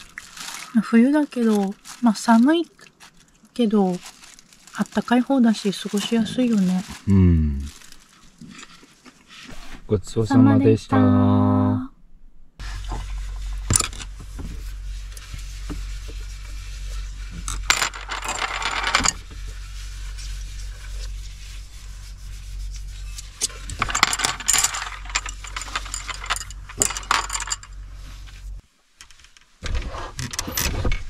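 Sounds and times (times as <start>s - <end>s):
rubbing or rustling: 3.8s - 7.1s, 12.6s - 30.2s
chopsticks rolling on table: 17.4s - 19.3s, 23.4s - 27.8s
tableware clicking and clinking: 17.5s - 19.2s, 23.6s - 27.8s.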